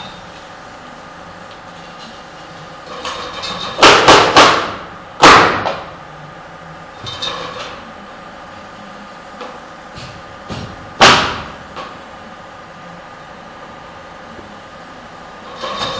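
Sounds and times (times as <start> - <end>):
nail gun firing: 11.0 - 11.5.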